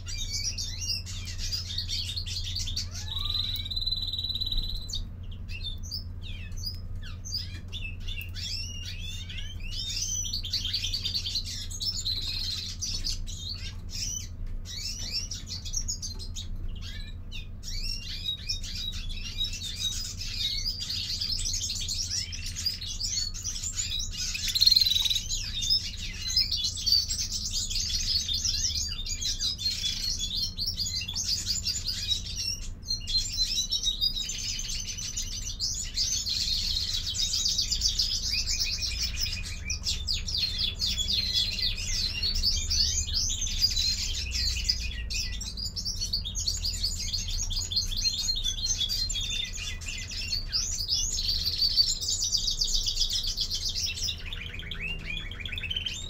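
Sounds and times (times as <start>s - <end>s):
finch twittering: 0.0s - 56.0s
steady low hum: 0.0s - 56.0s.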